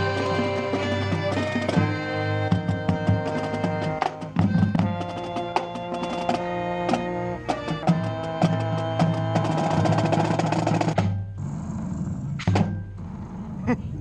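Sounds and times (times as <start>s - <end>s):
marching band music: 0.0s - 11.3s.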